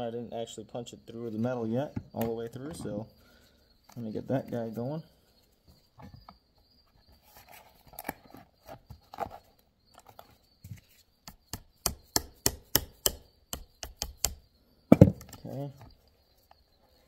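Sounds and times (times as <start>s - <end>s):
hammer tapping on punch: 11.5s - 14.4s.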